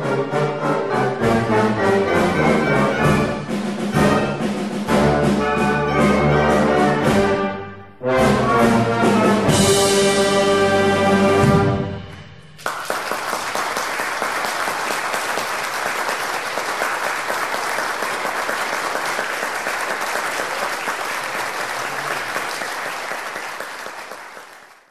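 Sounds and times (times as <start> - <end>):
orchestral music: 0.0 - 12.7
crowd applauding: 12.6 - 24.9.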